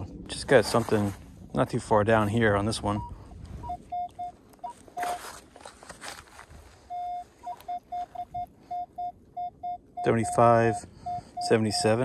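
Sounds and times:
metal detector beeps: 0:02.9 - 0:05.4, 0:06.9 - 0:12.0.

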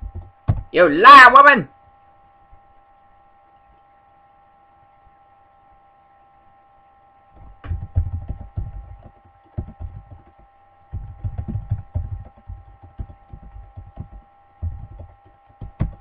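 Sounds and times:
faint electrical hum: 0:00.0 - 0:16.0
keyboard typing: 0:07.4 - 0:16.0.

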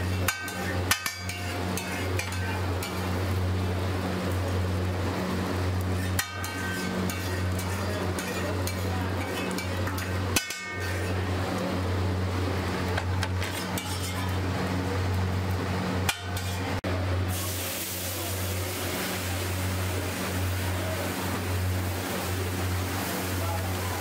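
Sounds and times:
metal spatula scraping griddle: 0:00.0 - 0:03.1, 0:05.8 - 0:11.3, 0:13.2 - 0:14.4, 0:16.0 - 0:16.8
water hissing on hot griddle: 0:00.0 - 0:03.7, 0:17.2 - 0:24.0.

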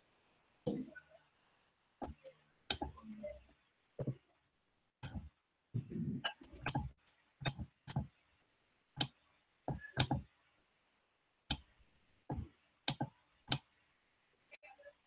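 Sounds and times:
computer mouse clicking: 0:09.8 - 0:10.2.

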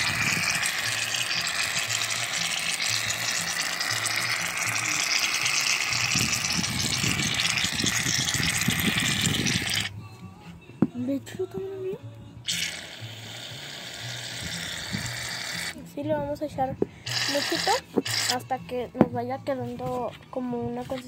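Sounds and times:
aerosol can spraying foam: 0:00.0 - 0:09.9, 0:12.5 - 0:15.8, 0:17.0 - 0:18.5.

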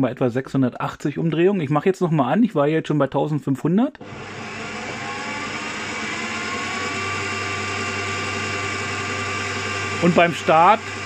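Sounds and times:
drill press motor whine: 0:04.0 - 0:11.0.

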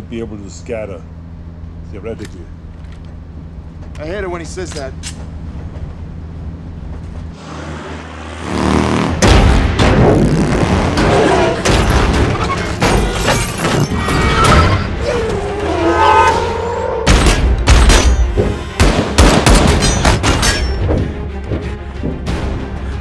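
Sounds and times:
action film music score: 0:04.1 - 0:23.0.

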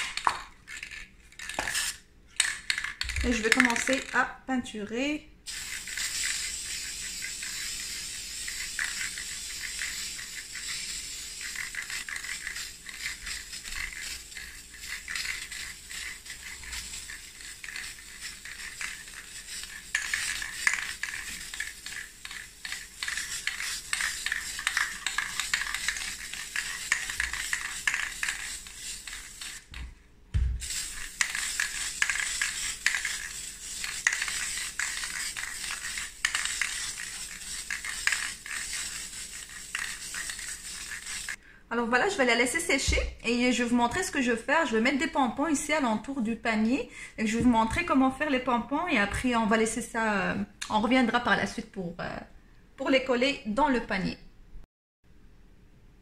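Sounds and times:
spray-paint can hissing: 0:00.0 - 0:02.0, 0:05.5 - 0:29.8, 0:30.4 - 0:41.4
low thump: 0:30.3 - 0:30.6.

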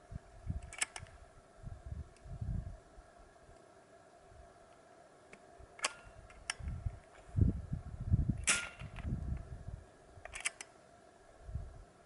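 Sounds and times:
airgun bolt clicks: 0:00.6 - 0:01.1, 0:10.2 - 0:10.7.

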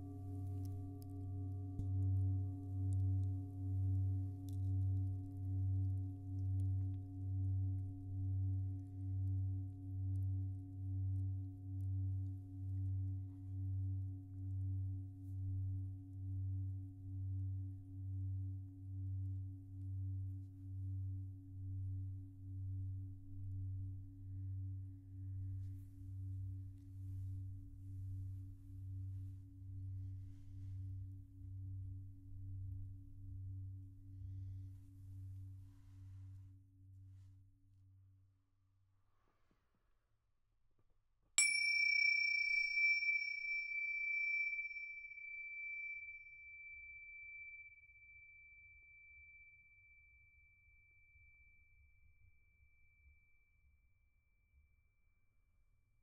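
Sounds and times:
high-pitched metal chime: 0:41.4 - 0:49.7
singing bowl humming: 0:41.4 - 0:53.3.

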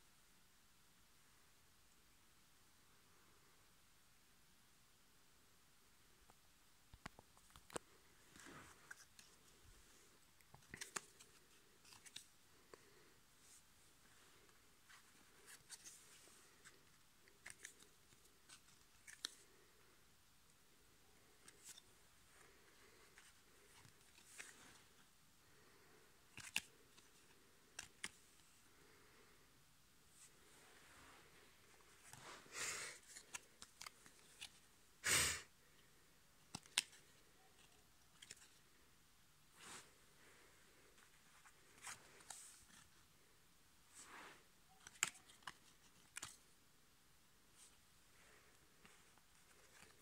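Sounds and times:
trading cards rustling and clicking: 0:07.0 - 0:13.6, 0:14.2 - 0:19.8, 0:21.1 - 0:29.1, 0:31.2 - 0:34.7, 0:36.4 - 0:38.7, 0:40.7 - 0:43.3, 0:44.7 - 0:46.5, 0:48.5 - 0:50.0
cardboard cards clicking and rustling: 0:10.4 - 0:12.3, 0:14.9 - 0:19.6, 0:26.3 - 0:28.5, 0:33.0 - 0:34.7, 0:36.5 - 0:38.6, 0:44.7 - 0:46.4, 0:48.8 - 0:50.0.

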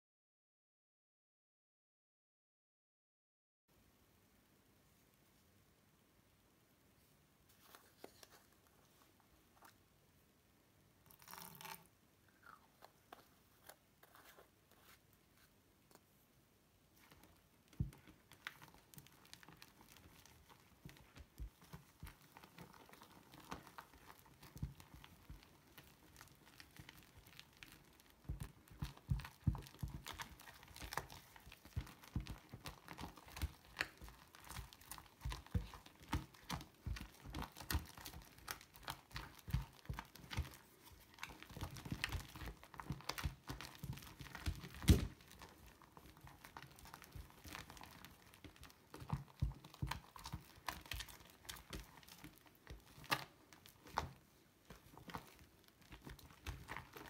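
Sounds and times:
loud slime pop: 0:44.4 - 0:45.2.

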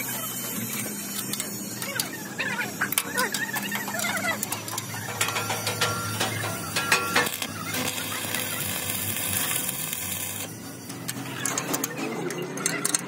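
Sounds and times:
metal tools clinking: 0:03.0 - 0:07.4.

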